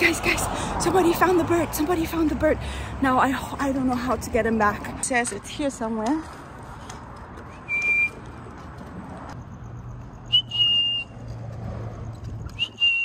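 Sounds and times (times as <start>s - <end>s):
person whistling calling notes: 7.5s - 8.2s, 10.3s - 11.2s, 12.5s - 13.0s.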